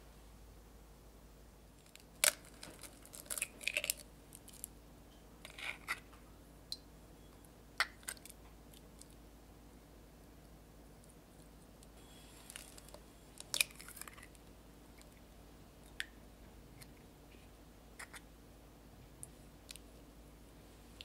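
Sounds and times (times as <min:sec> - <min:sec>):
eggshell crackling: 0:01.8 - 0:04.7, 0:12.4 - 0:15.2.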